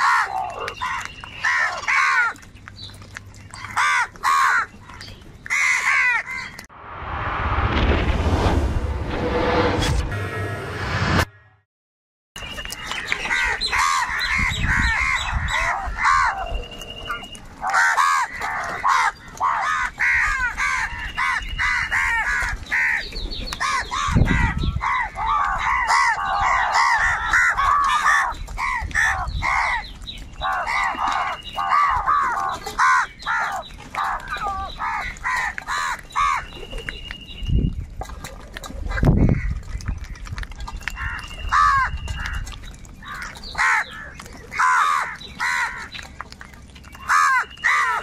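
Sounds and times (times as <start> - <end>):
crows cawing: 0.0 - 2.4, 3.7 - 4.8, 5.5 - 6.6, 13.3 - 16.5, 17.6 - 36.4, 41.0 - 42.4, 43.0 - 46.0, 47.0 - 48.0.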